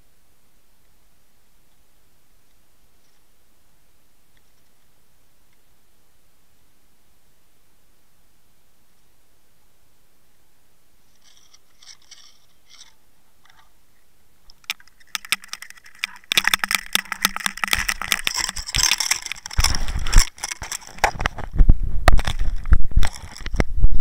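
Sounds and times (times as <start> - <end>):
faint underwater clicks: 14.4 - 23.7
water splashing: 14.6 - 20.9
knocks and scrapes on camera housing: 14.7 - 23.6.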